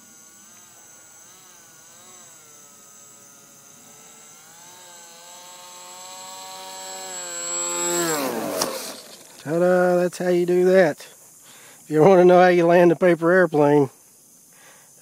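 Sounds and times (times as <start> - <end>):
electric propeller motor whining: 0.0 - 10.0.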